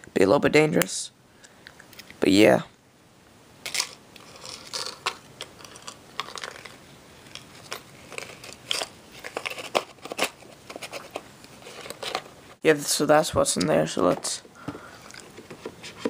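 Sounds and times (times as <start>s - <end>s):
locket and chain handling: 3.7s - 9.6s.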